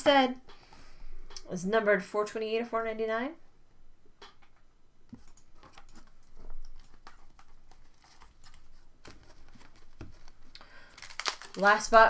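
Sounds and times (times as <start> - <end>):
foil wrappers crinkling: 5.8 - 12.0.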